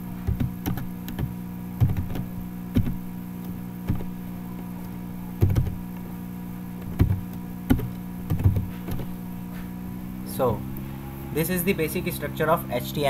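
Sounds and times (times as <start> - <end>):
low electrical hum: 0.0 - 13.0
keyboard keystrokes: 0.2 - 4.1, 5.4 - 5.8, 6.8 - 9.1.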